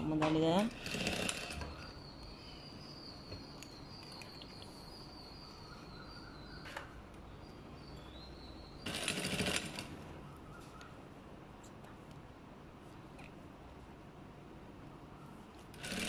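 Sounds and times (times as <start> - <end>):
sewing machine stitching: 0.7 - 1.8, 8.9 - 9.9, 15.8 - 16.0.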